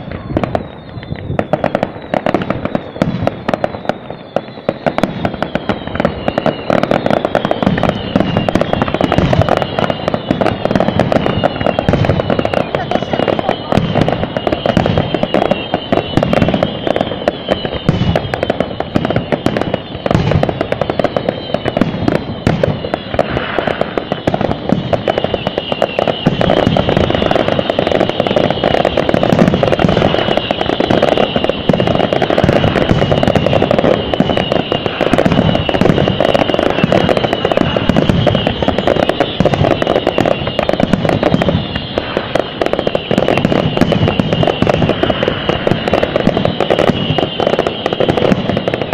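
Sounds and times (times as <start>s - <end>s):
fireworks bursting: 0.0s - 48.9s.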